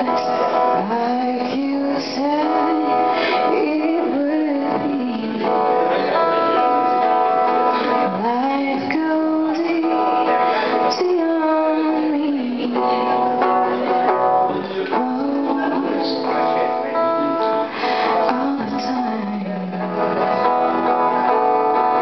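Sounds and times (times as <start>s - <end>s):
woman singing: 0.0s - 6.1s, 7.7s - 13.6s, 14.6s - 16.4s, 17.9s - 20.7s
guitar accompaniment: 0.0s - 22.0s.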